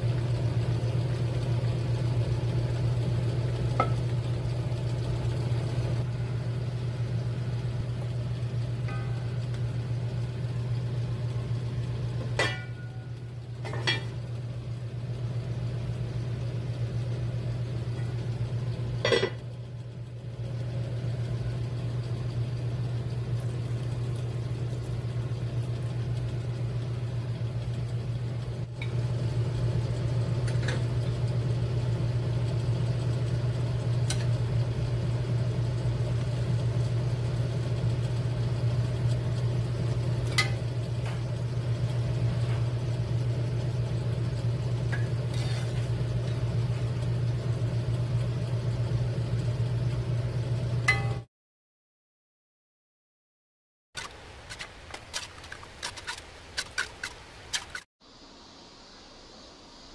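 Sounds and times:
kitchen appliance motor hum: 0:00.0 - 0:51.2
utensils clinking on cookware: 0:12.3 - 0:14.2, 0:19.0 - 0:19.4.

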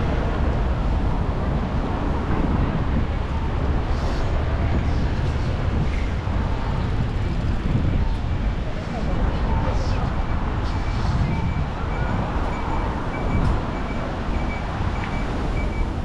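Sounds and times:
low city rumble: 0:00.0 - 0:16.0.

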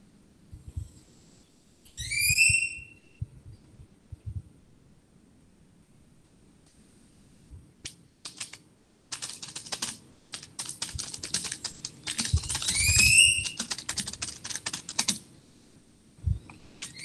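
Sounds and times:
high rising squeak: 0:01.9 - 0:03.2, 0:12.4 - 0:13.6
typing on computer keyboard: 0:07.8 - 0:15.2, 0:16.8 - 0:17.0.

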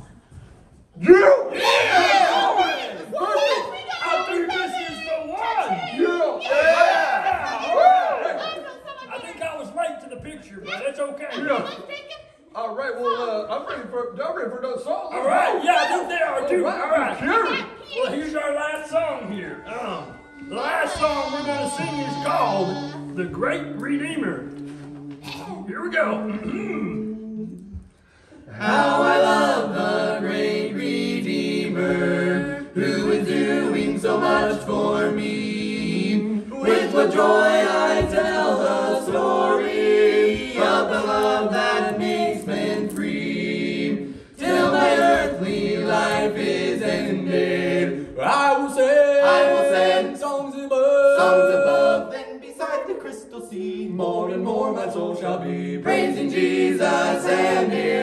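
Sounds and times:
people singing a cappella: 0:19.4 - 0:58.0.

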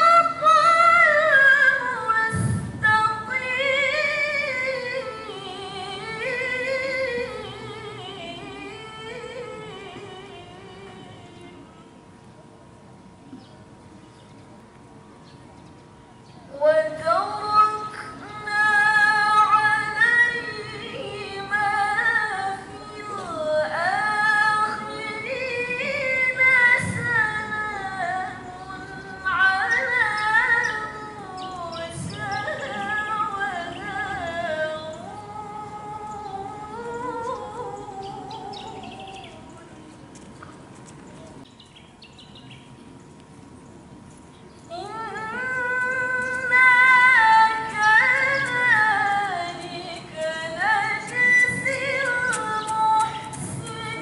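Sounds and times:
woman reciting melodically: 0:00.0 - 0:11.7, 0:16.5 - 0:39.9, 0:44.7 - 0:54.0.

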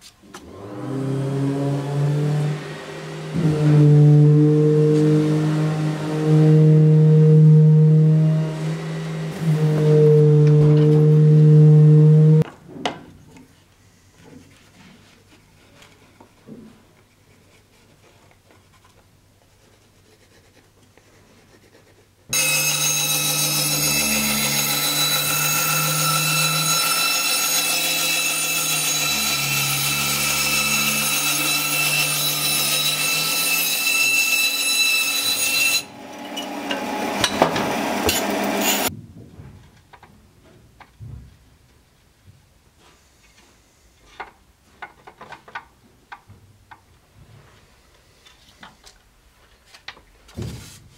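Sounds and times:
bandsaw cutting wood: 0:00.4 - 0:12.4, 0:22.3 - 0:38.9.

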